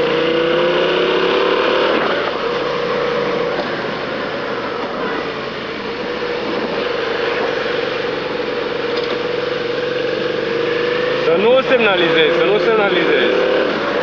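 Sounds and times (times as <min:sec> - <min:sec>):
motorcycle engine running: 0:00.0 - 0:14.0
wind and road noise: 0:00.0 - 0:14.0.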